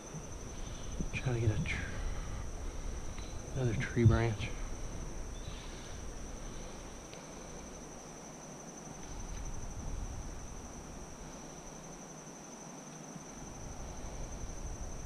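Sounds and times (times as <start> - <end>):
insect chorus: 0.0 - 15.0.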